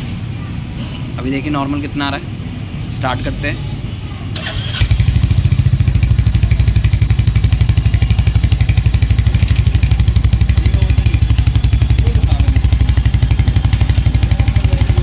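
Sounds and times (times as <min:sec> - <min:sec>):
motorcycle engine starting: 0:04.3 - 0:15.0
motorcycle engine idling: 0:04.4 - 0:15.0.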